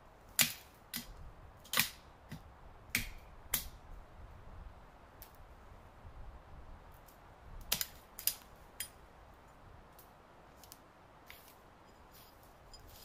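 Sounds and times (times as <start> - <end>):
dry twigs snapping: 7.0 - 8.5
footsteps through dry brush: 10.5 - 13.0.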